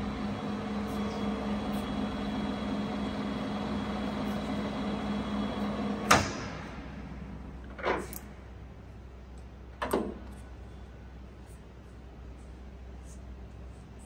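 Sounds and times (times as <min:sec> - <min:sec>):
lathe running with even hum: 0:00.0 - 0:07.5.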